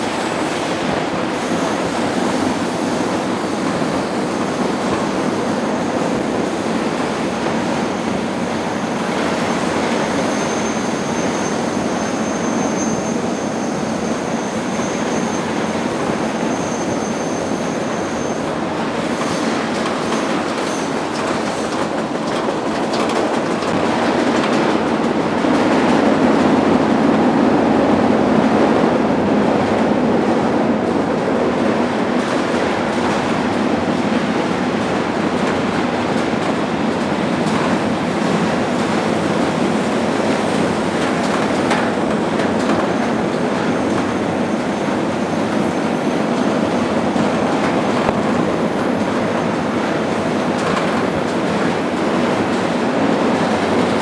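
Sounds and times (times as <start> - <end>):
train wheels rumbling on rails: 0.0 - 54.0
rail joint clicks: 19.1 - 26.2, 35.4 - 52.8.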